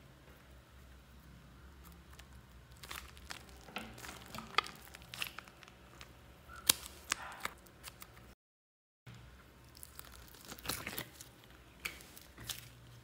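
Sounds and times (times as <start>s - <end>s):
rubbery crinkling and scraping: 1.8s - 8.3s, 9.7s - 13.0s.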